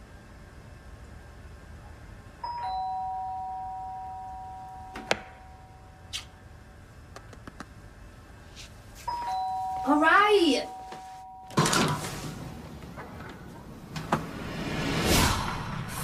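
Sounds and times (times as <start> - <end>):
two-tone doorbell chime: 2.4 - 6.0, 9.0 - 11.9.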